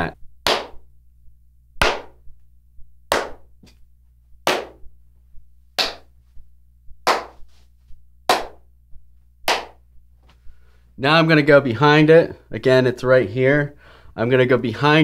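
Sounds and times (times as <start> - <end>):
hands clapping: 0.5 - 0.8, 1.8 - 2.2, 3.1 - 3.8, 4.5 - 4.8, 5.8 - 6.1, 7.1 - 7.6, 8.3 - 8.6, 9.5 - 10.4.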